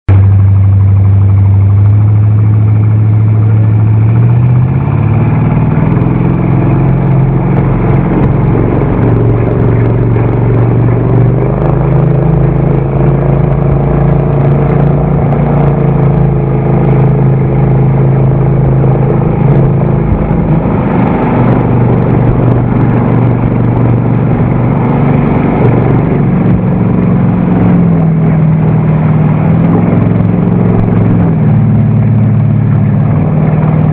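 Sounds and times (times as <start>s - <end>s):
boat wake rushing: 0.0s - 33.9s
motorboat engine running hard: 0.0s - 33.9s.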